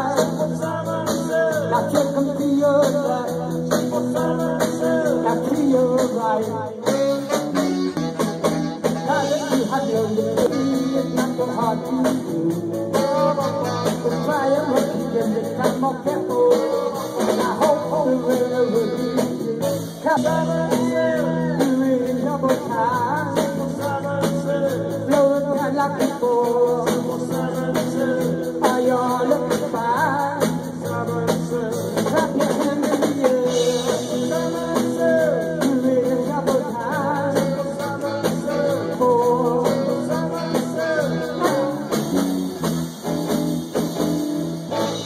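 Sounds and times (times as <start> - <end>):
bass guitar: 0.0 - 45.0
drum kit: 0.0 - 45.0
electric guitar: 0.0 - 45.0
person singing lead: 8.8 - 42.2.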